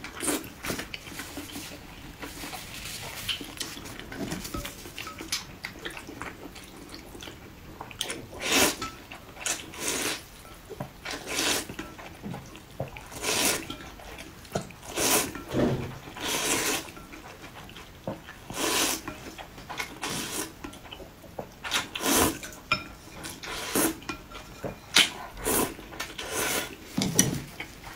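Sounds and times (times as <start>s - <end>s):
noodles being slurped: 0.1s - 7.3s, 8.0s - 10.3s, 11.1s - 11.8s, 13.0s - 15.4s, 16.0s - 17.7s, 18.3s - 19.2s, 19.8s - 20.6s, 21.6s - 22.6s, 23.2s - 24.1s, 25.0s - 26.9s.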